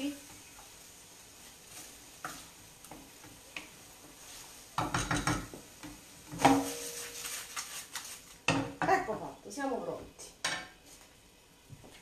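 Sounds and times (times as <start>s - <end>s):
utensil scraping metal pan: 6.3s - 8.0s.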